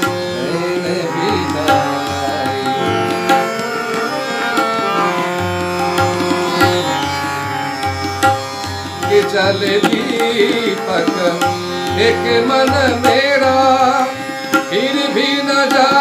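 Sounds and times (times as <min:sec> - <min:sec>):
harmonium melody: 0:00.0 - 0:16.0
tanpura drone: 0:00.0 - 0:16.0
tabla strokes: 0:01.2 - 0:16.0.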